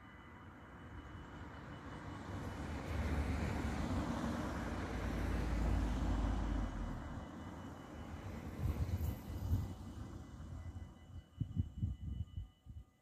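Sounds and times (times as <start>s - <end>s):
cars driving past on bricks: 2.5s - 10.2s.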